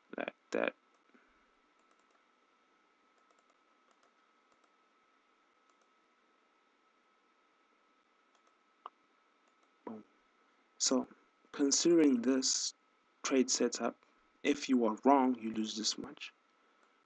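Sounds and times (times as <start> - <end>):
faint high whine: 0.0 - 16.8
computer mouse clicks: 1.8 - 2.2, 3.1 - 4.8, 5.6 - 5.9, 8.3 - 9.8.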